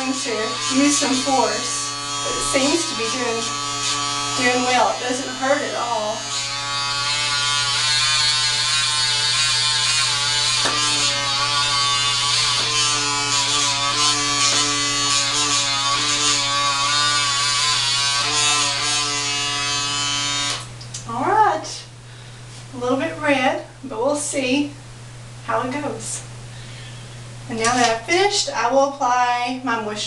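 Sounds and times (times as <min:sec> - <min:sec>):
suction motor buzzing: 0:00.0 - 0:20.7.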